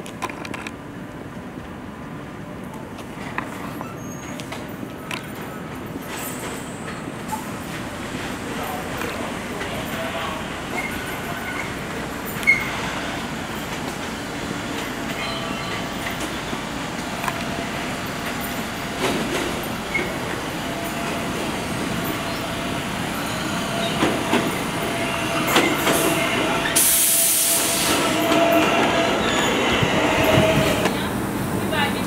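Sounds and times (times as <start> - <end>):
train wheels rumbling on rail: 0.0 - 32.0
faint wheel squeal: 3.7 - 4.7, 9.9 - 13.1.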